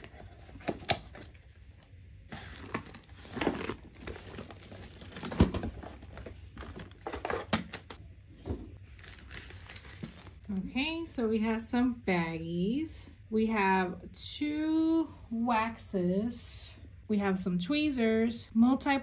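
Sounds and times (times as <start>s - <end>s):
plastic wrapping crinkling and tearing: 0.0s - 7.8s, 8.9s - 10.5s.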